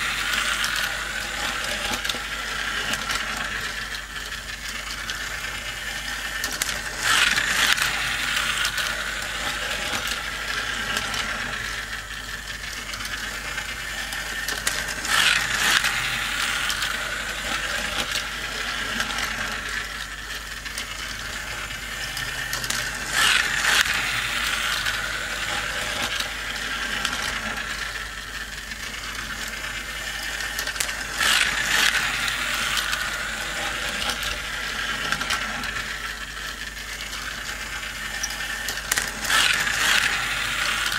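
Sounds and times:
toy car motors whirring: 0.0s - 40.9s
wheels clattering on plastic: 28.6s - 40.9s.

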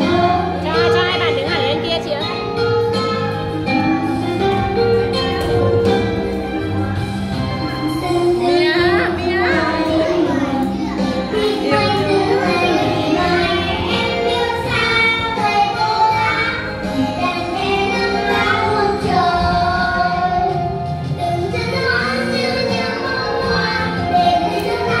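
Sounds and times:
recorded musical backing track: 0.0s - 25.0s.

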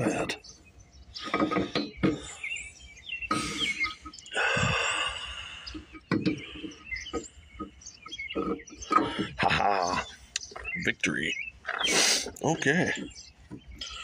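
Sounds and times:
chickens calling: 0.0s - 14.0s
metal knocks and clicks: 1.2s - 2.4s, 5.8s - 10.8s.

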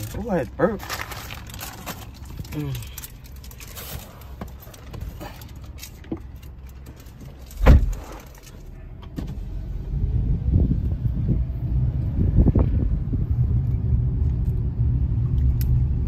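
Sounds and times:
low rumble: 7.4s - 16.0s
heavy thump: 7.6s - 8.0s.

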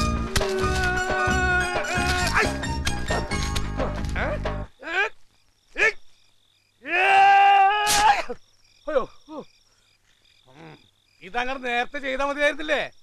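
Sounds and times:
crickets chirping: 0.0s - 13.0s
man crying out: 0.5s - 2.6s.

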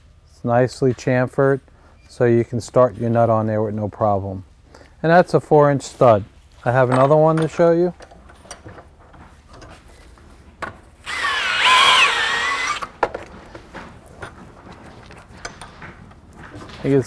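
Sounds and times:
bit grinding metal: 11.0s - 13.0s
cordless drill motor whine: 11.0s - 13.0s.

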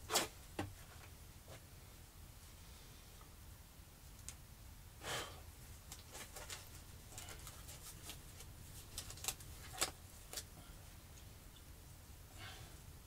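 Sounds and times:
disposable gloves crinkling: 5.8s - 10.5s.

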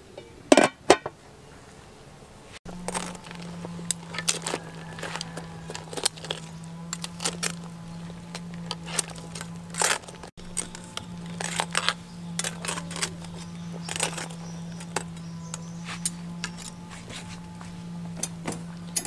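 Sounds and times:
steady low hum: 0.0s - 19.0s
metal tongs clanking on pot: 2.8s - 16.8s.

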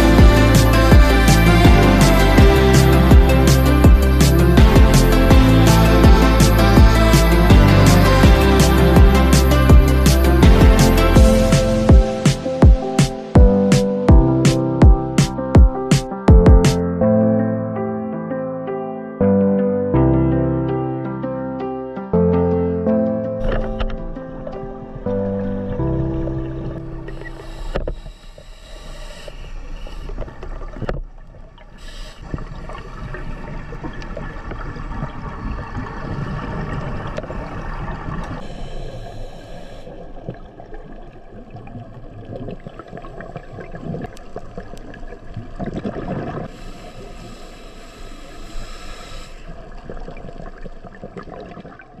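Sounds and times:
underwater scuba bubbles gurgling: 25.7s - 52.0s.

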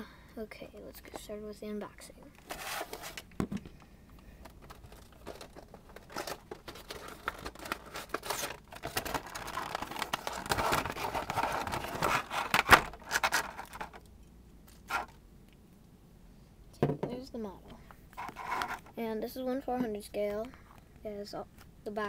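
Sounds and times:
packaging rustling and crinkling: 2.4s - 14.1s, 14.7s - 15.2s, 18.2s - 19.0s
clicks and scrapes: 18.1s - 19.0s.

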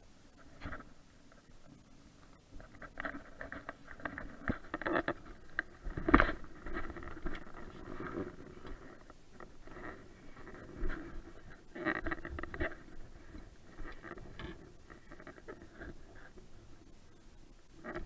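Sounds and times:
fishing rods and reels knocking: 2.6s - 16.5s.

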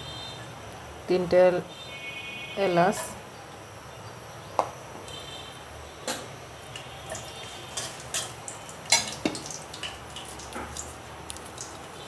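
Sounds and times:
oil sizzling: 6.6s - 12.0s
metal spatula scraping a pan: 7.3s - 8.4s.

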